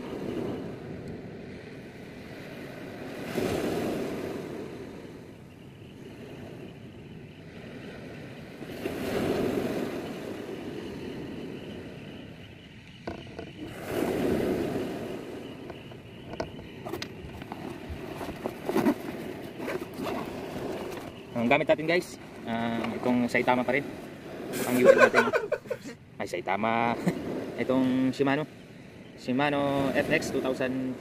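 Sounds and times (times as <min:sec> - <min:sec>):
sea surf washing on shore: 0:00.0 - 0:06.8, 0:07.4 - 0:12.0, 0:13.0 - 0:31.0
fishing gear clicks and knocks: 0:15.7 - 0:21.2.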